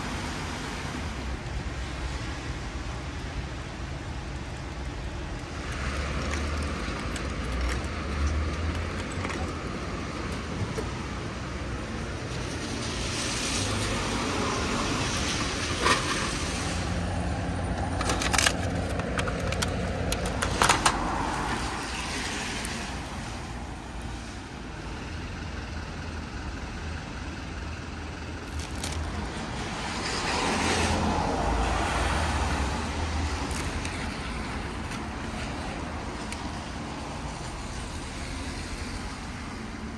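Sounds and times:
road traffic passing: 0.0 - 39.9.

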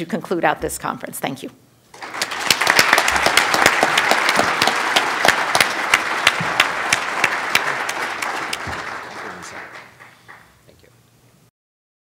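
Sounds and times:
audience applauding: 2.0 - 10.7.

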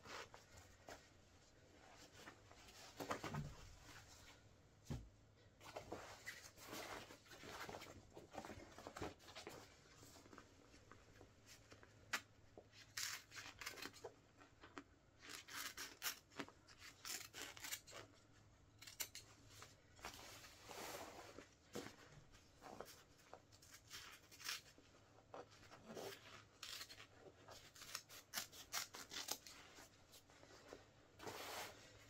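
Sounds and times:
fabric being cut and ripped: 15.2 - 18.1, 23.6 - 24.8, 25.8 - 29.6.

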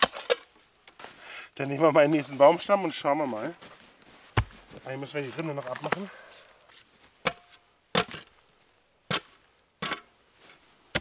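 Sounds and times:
spade striking a log: 7.2 - 8.3, 9.1 - 10.1.

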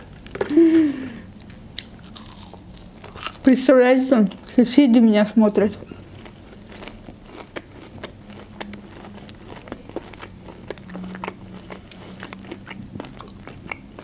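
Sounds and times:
chewing crunchy fried food: 1.2 - 4.6, 5.8 - 14.0
wet mouth sounds: 5.9 - 14.0.

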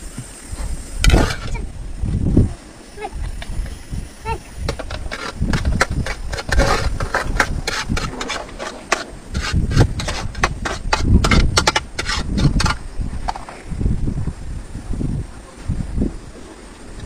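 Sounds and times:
metal spoon in pan: 4.7 - 12.8.

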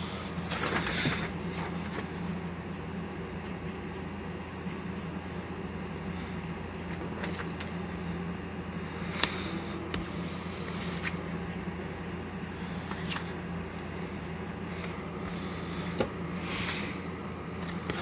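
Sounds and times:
low background hum: 0.0 - 18.0
paper leaflets rustling: 0.3 - 2.1, 6.9 - 8.2, 10.4 - 11.3, 12.8 - 14.0.

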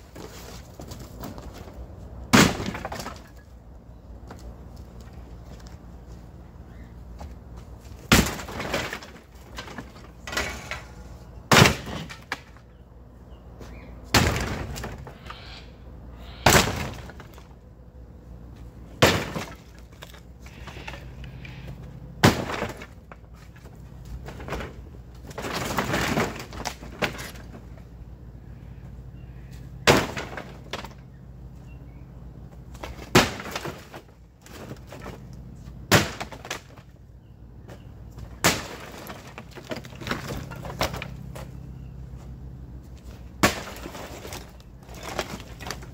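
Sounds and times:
heavy sledgehammer strikes: 2.3 - 3.0.

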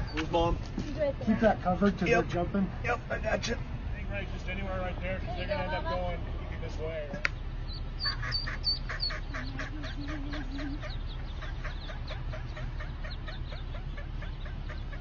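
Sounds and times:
ducklings peeping: 0.0 - 0.5, 7.2 - 15.0
steady low rumble: 0.0 - 15.0
duck quacking: 8.0 - 15.0.

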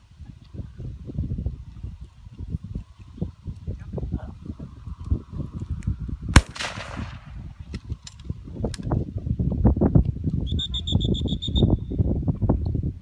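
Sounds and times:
shotgun shot with echo: 6.4 - 7.5.

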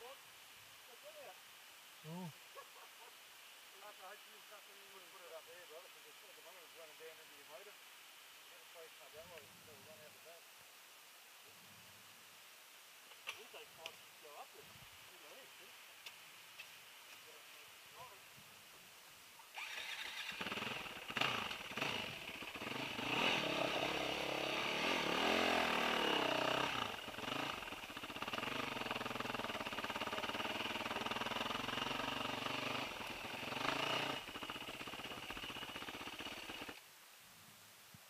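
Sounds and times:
dirt bike engine revving: 19.5 - 36.8.

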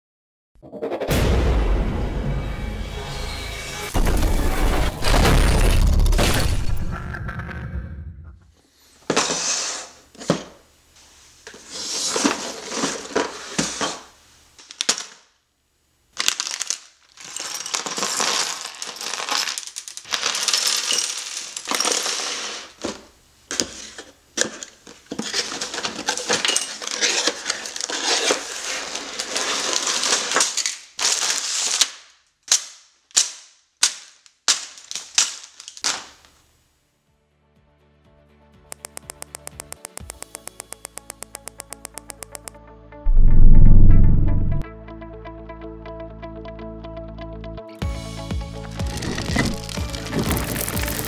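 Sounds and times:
plastic bricks rattling: 16.2 - 22.4, 34.5 - 36.1, 48.8 - 51.0
cardboard and plastic bag rustling: 16.3 - 22.8, 24.9 - 31.8, 48.7 - 51.0
sharp plastic clacks: 38.7 - 42.6.

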